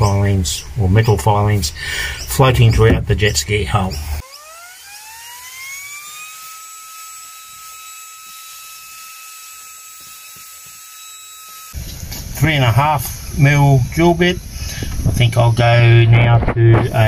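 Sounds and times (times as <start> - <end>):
cordless vacuum cleaner whine: 4.2 - 12.0.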